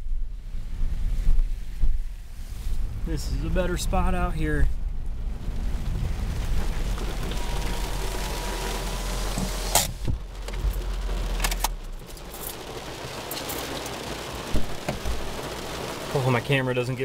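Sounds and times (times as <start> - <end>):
car engine humming: 2.6 - 17.0
sharp clicks of car controls: 9.3 - 12.6.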